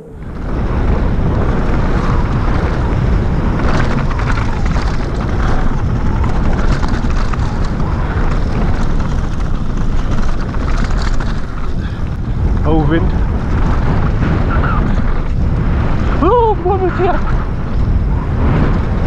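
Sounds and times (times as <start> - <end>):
bike rattling over rough ground: 0.0 - 19.0
wind rumbling on microphone: 0.0 - 19.0.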